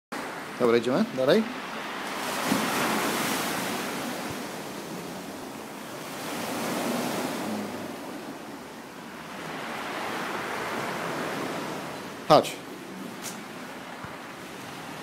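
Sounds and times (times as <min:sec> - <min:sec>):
waves breaking on shingle beach: 0:01.2 - 0:12.2.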